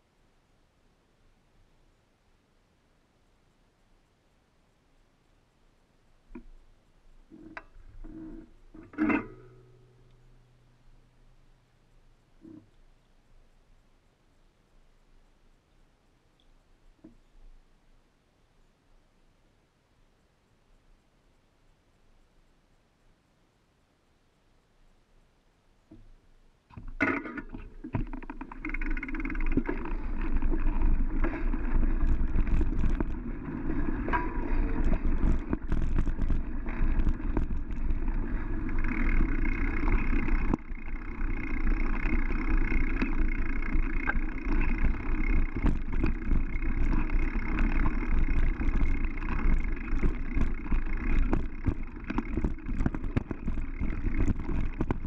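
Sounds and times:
sharp clicks and knocks: 26.7 - 55.0
bike tyres rumbling on dirt: 26.8 - 55.0
rattling bike parts: 26.8 - 55.0.

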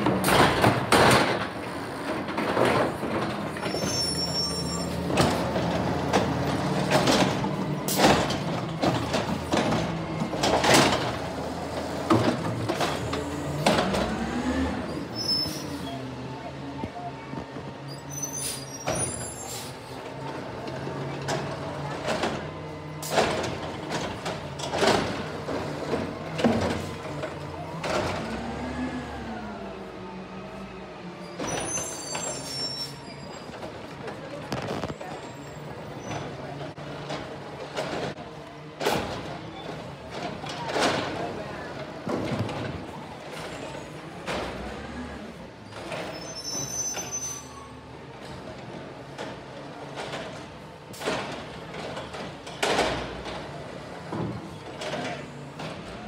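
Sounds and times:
cart banging in truck hopper: 0.0 - 14.9, 20.8 - 28.7, 48.2 - 56.0
high squeal: 3.6 - 5.0, 31.3 - 33.5.

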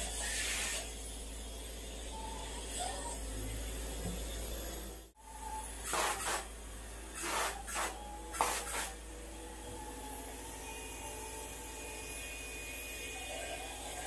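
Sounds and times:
low hum of spraying equipment: 0.0 - 14.0
spray-foam gun hissing: 5.8 - 6.5, 7.2 - 8.9.

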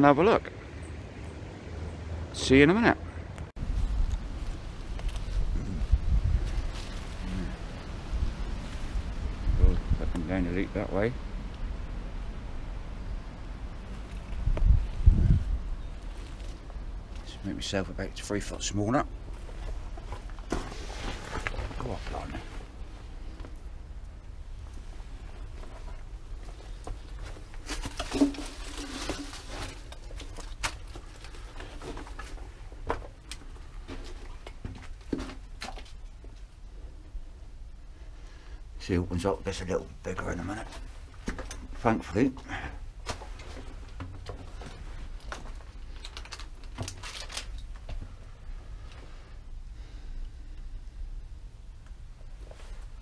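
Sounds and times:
person crawling through tunnel: 19.4 - 23.4.

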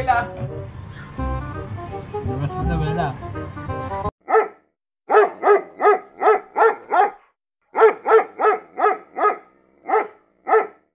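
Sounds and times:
dog barking: 4.2 - 10.9.

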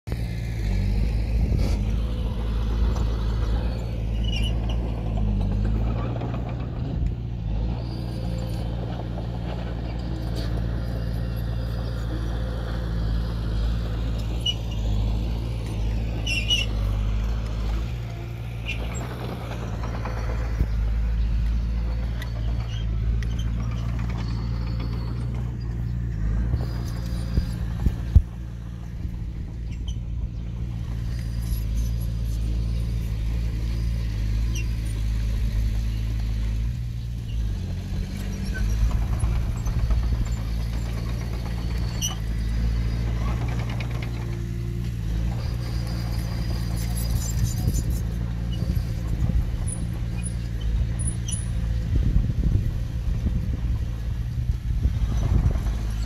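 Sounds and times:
diesel engine running: 0.0 - 56.0
high squeaks: 3.6 - 5.4, 14.2 - 21.2, 21.8 - 28.2, 29.5 - 33.0, 38.2 - 51.6.

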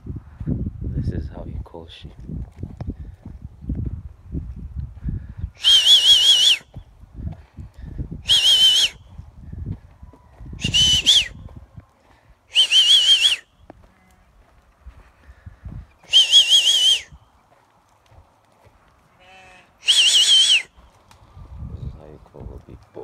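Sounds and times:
person whistling warbling call: 5.6 - 6.7, 8.2 - 9.0, 10.6 - 11.4, 12.5 - 13.5, 16.1 - 17.2, 19.8 - 20.8.

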